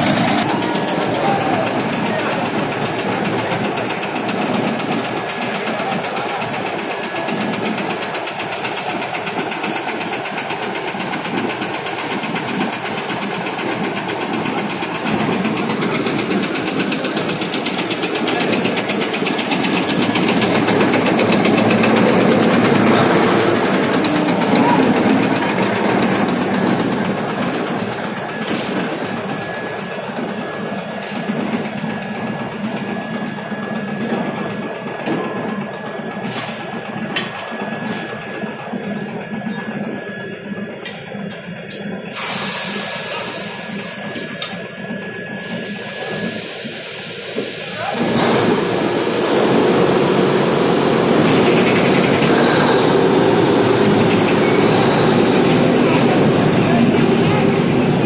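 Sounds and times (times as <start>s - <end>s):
heavy machinery din: 0.0s - 42.4s, 43.2s - 58.0s.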